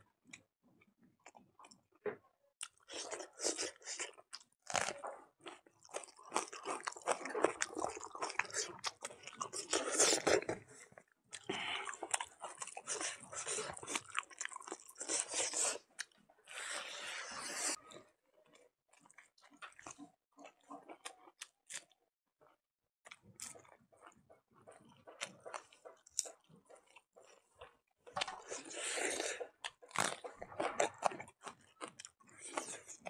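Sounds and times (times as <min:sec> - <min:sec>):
wet chewing: 0:02.6 - 0:17.8, 0:23.1 - 0:33.0.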